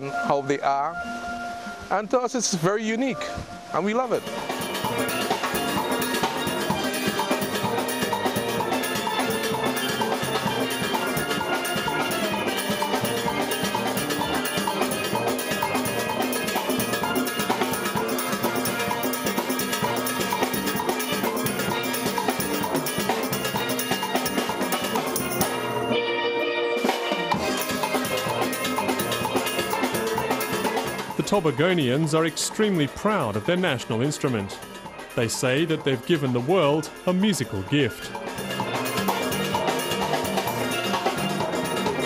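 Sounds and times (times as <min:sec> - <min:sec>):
steel band playing: 0:00.0 - 0:42.0.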